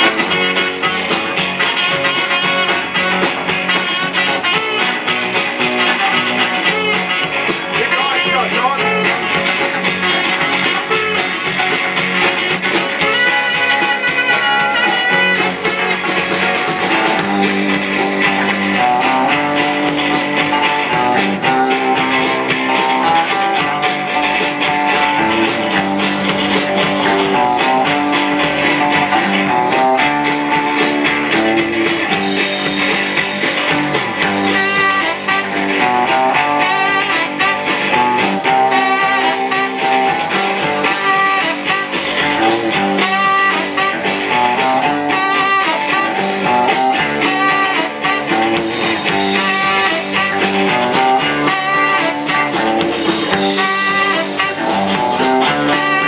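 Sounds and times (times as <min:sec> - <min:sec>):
drum kit steady beat: 0:00.0 - 0:56.0
electric guitars: 0:00.0 - 0:56.0
saxophone: 0:00.0 - 0:56.0.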